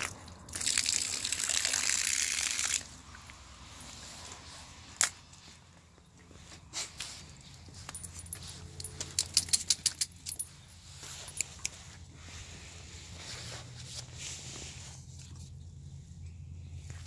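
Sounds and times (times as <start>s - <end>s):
small metal pieces jangling: 7.8s - 10.6s.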